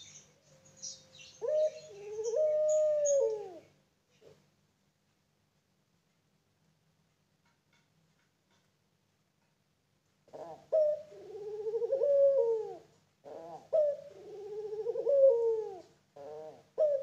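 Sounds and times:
dove cooing: 0.0 - 3.7, 10.3 - 17.0.

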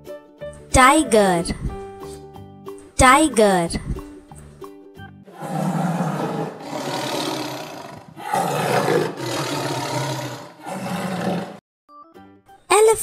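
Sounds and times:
tiger roaring: 5.3 - 11.6.

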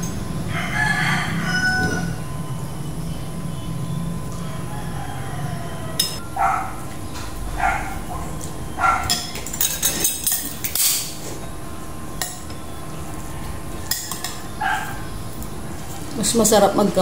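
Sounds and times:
dog barking: 6.4 - 6.8, 7.6 - 9.2, 14.6 - 15.1
cutlery clinking on plates: 9.0 - 11.2, 13.9 - 14.4.

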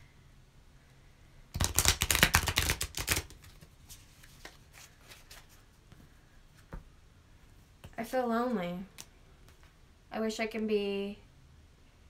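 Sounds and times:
cards being shuffled: 1.5 - 5.8.

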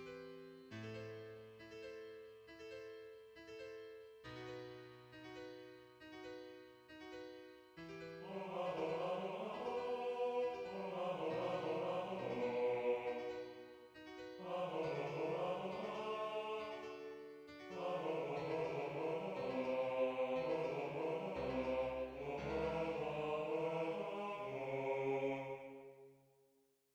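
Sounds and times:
sampled piano chords: 0.0 - 24.8
synthesized choir-like voice: 8.2 - 13.8, 14.4 - 26.1.

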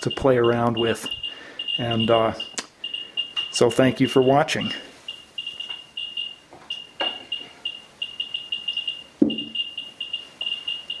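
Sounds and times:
short high beeps: 5.1 - 11.0.

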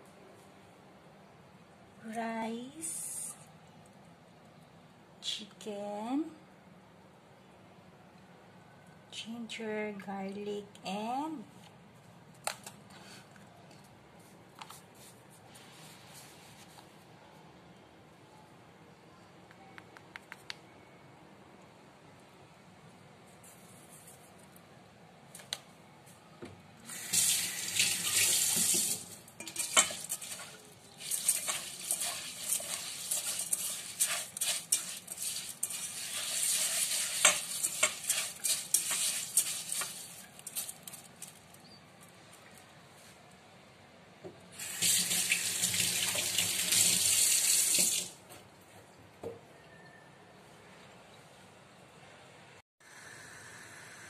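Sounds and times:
water pouring into a pot: 27.0 - 40.3, 44.6 - 48.2.

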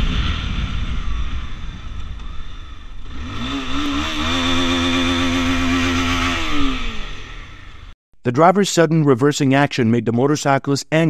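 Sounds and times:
road rumble: 0.0 - 8.0
motorcycle engine revving: 0.8 - 8.0.

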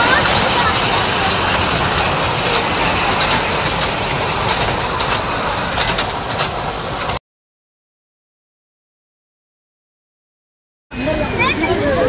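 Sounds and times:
miniature train rolling rumble: 0.0 - 7.2, 11.0 - 12.0.

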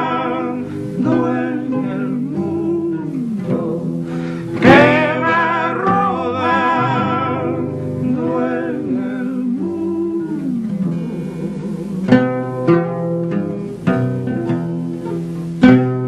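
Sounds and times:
male vocal duo singing: 0.0 - 12.3
plucked acoustic guitar: 0.0 - 16.0.

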